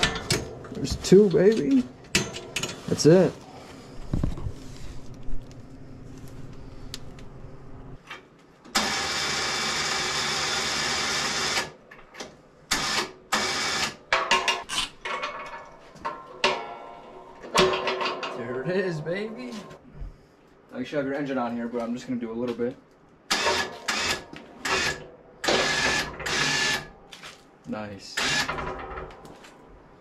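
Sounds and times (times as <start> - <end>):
electric winch motor running: 8.7 - 11.8, 12.7 - 14.0, 23.3 - 26.9.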